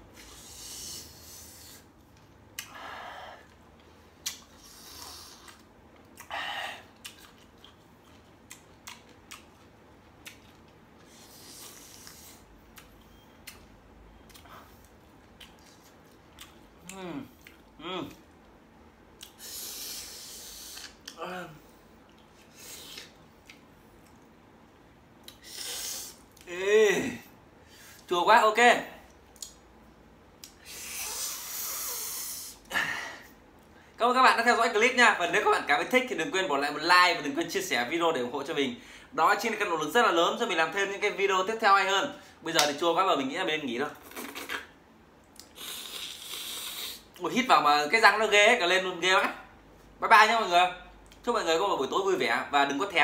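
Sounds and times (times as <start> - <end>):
hissing breaths through teeth: 0.2 - 1.9, 4.5 - 5.6, 11.0 - 12.5, 19.3 - 21.0, 25.4 - 26.2, 30.6 - 32.7, 45.5 - 47.2
person chewing crunchy fruit: 3.4 - 18.5
man groaning: 26.5 - 27.3.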